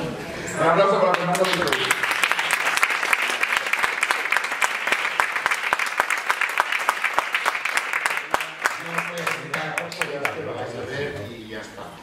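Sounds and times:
audience applauding: 1.1 - 10.7.

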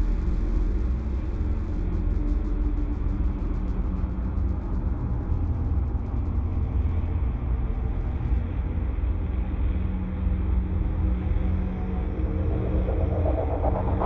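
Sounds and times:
low rumbling drone: 5.4 - 14.0.

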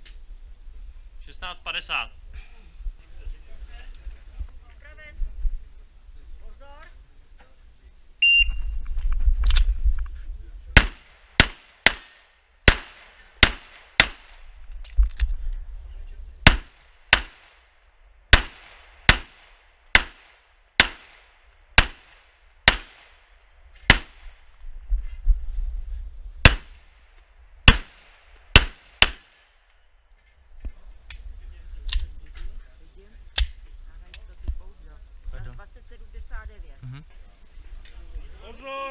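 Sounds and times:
wind on microphone: 2.1 - 6.4, 8.4 - 10.8, 24.2 - 26.5
handgun shots: 10.8 - 14.4, 16.5 - 17.5, 18.3 - 21.2, 21.8 - 23.1, 26.5 - 26.7, 27.7 - 29.3.

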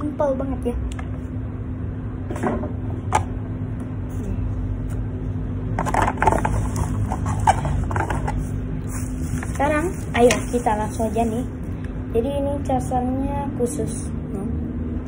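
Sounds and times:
low hum: 0.0 - 15.0
clicks taps and rustles: 5.8 - 8.4.

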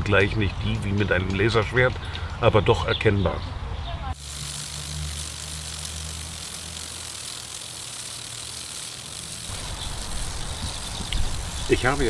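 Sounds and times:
sprinkler mechanical ticking: 4.1 - 12.0
water spray hissing: 4.1 - 12.0.

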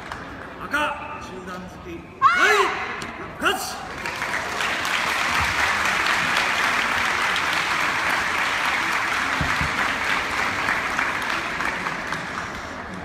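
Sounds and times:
crowd applauding: 3.8 - 13.0.

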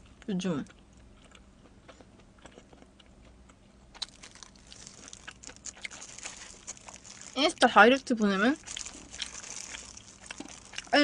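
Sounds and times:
close chewing: 0.7 - 11.0
crackly plastic rustling: 4.0 - 11.0.

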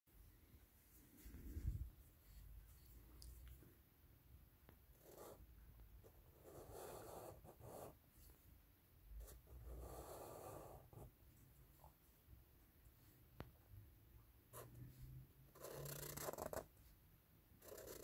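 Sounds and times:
marker drawing on paper: 4.9 - 5.4, 6.3 - 8.0, 9.2 - 11.1, 15.5 - 16.7, 17.6 - 18.0.

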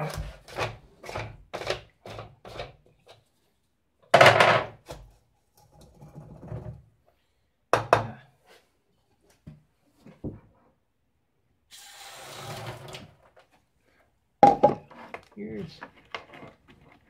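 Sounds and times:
hollow plastic knocks and clunks: 14.4 - 14.9.

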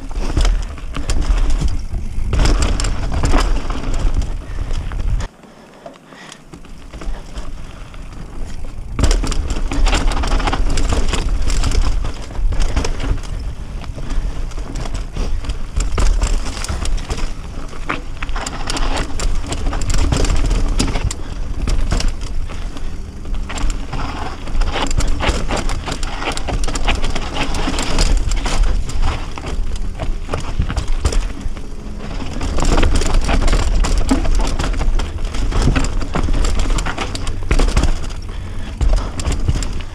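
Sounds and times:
bike clattering knocks: 0.0 - 5.3, 6.2 - 39.9
bike tyres crunching over dirt: 0.0 - 39.9.

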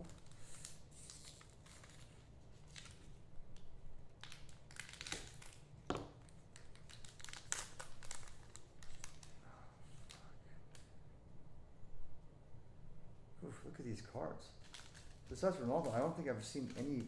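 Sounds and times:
wrapper crinkling and tearing: 0.0 - 9.4, 14.6 - 17.0.

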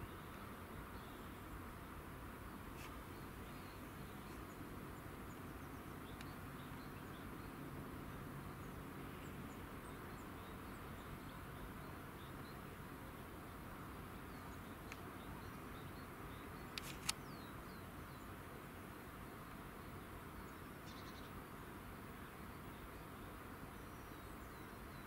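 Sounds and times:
low hum and hiss: 0.0 - 25.0
faint clicks: 6.0 - 6.4, 14.8 - 15.6, 16.6 - 17.4
bird chirps: 20.4 - 21.4.

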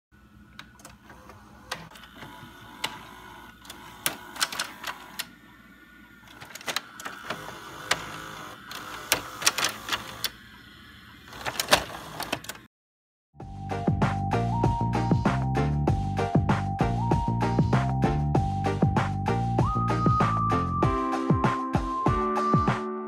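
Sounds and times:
video recorder mechanism clicks: 0.6 - 5.3, 6.3 - 10.4.

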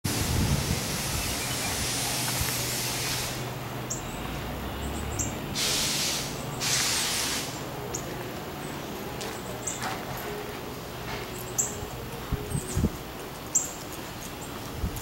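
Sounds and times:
rushing hiss: 0.1 - 3.6, 5.6 - 7.7.

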